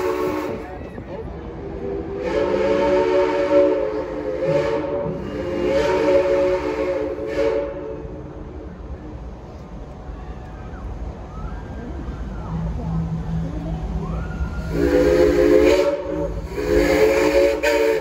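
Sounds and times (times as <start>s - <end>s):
steam whistle chord: 2.2s - 8.0s, 14.0s - 18.0s
steam hiss: 14.0s - 18.0s.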